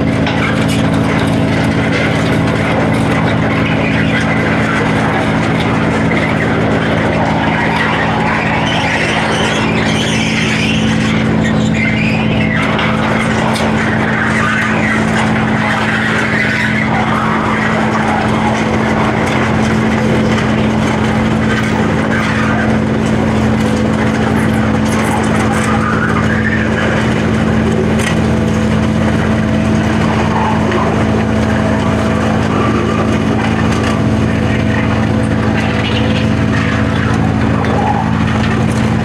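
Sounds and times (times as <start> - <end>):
tractor engine running: 0.0 - 39.0.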